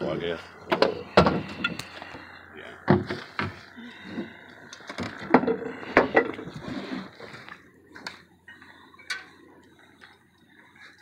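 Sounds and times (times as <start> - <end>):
knocks and clanks in metal boat: 0.7 - 1.8, 2.8 - 3.6.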